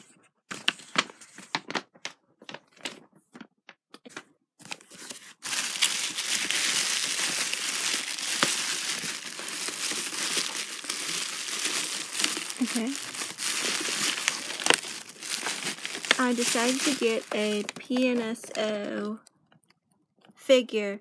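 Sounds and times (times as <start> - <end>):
bubble wrap crinkling: 4.6 - 18.8.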